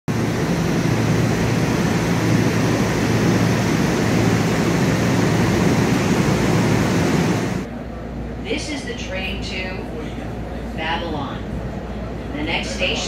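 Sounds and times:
electric train humming: 0.1s - 13.0s.

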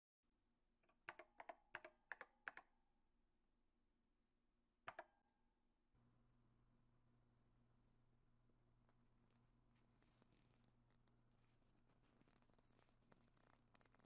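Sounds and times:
low steady hum and hiss: 6.0s - 13.8s.

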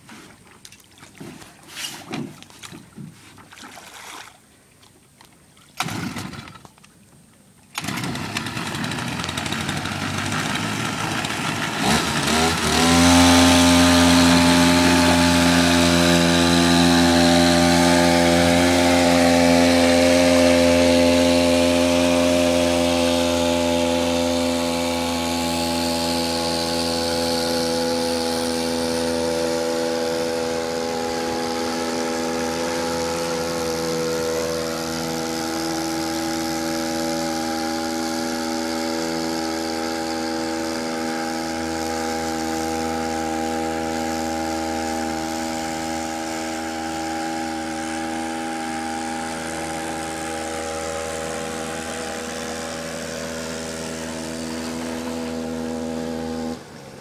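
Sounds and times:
small boat engine running: 7.7s - 57.0s.

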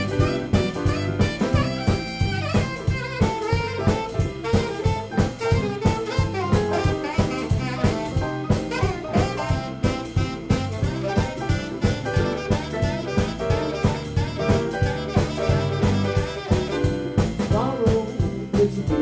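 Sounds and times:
drum kit beat: 0.0s - 19.0s
jump blues band playing: 0.0s - 19.0s.

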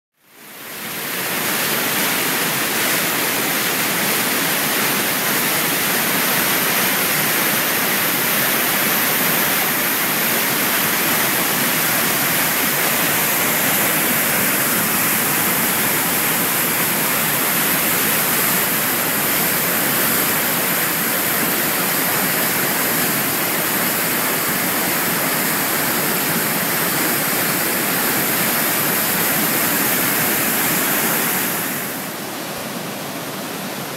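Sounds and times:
waterfall rushing: 0.3s - 33.9s.

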